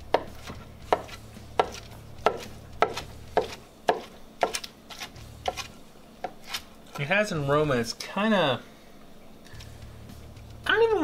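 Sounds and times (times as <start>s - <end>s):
knife chopping on cutting board: 0.0s - 6.6s.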